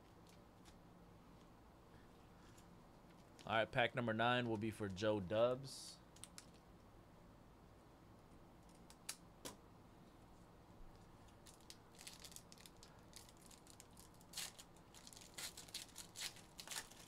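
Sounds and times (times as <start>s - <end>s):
foil wrapper crinkling and tearing: 11.4s - 17.0s.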